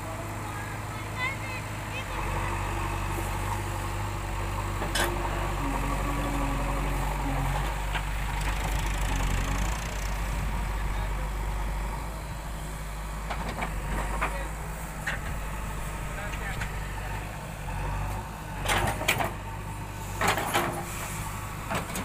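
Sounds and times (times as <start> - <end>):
diesel engine running: 0.0 - 22.0
backhoe arm digging soil: 4.8 - 10.3.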